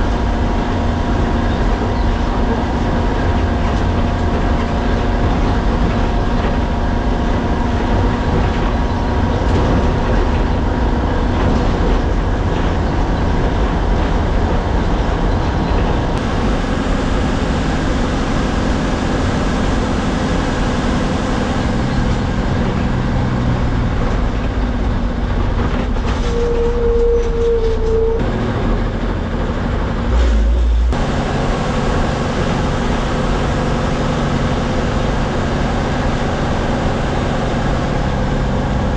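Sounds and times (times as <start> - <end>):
bus engine and road noise: 0.0 - 38.9
steady tone: 16.2 - 23.1.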